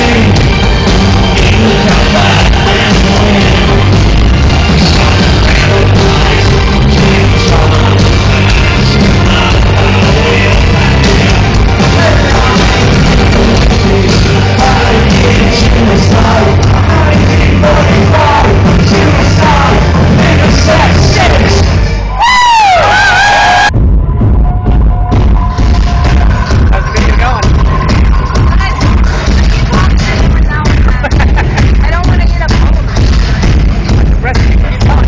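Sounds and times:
heavy throbbing bass: 0.0 - 35.0
live industrial band playing: 0.0 - 35.0.

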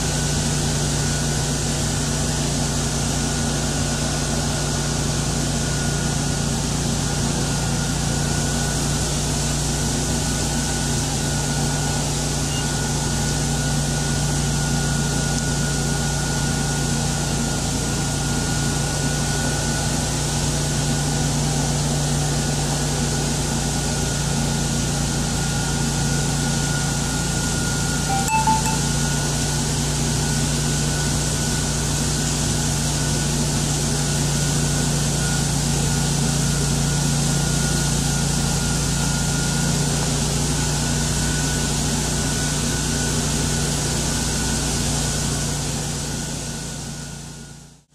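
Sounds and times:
high whine: 28.1 - 29.4.

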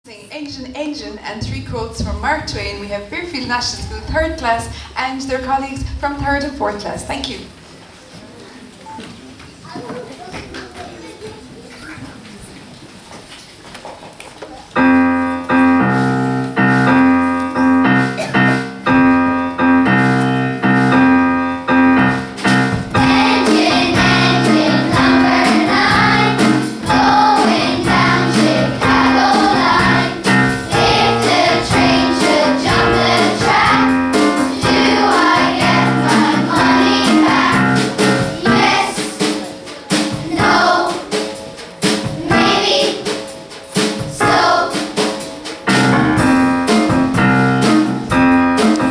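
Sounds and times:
instrumental accompaniment: 14.8 - 48.9
children's choir singing: 22.1 - 45.2.

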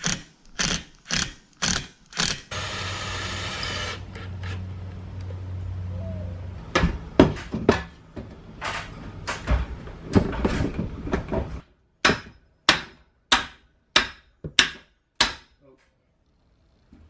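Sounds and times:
hammer striking: 12.0 - 15.6.

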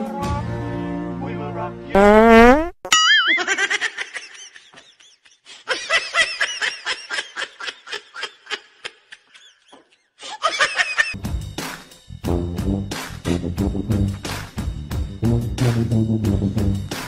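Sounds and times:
high-pitched giggling laughter: 2.9 - 11.2.

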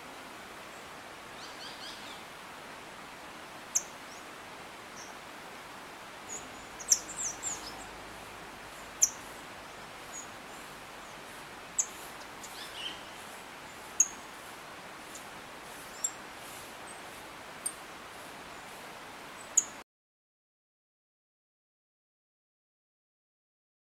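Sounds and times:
background hiss: 0.0 - 19.8
bird chirping: 6.3 - 8.0, 8.7 - 11.2, 11.8 - 14.2, 15.8 - 16.2.

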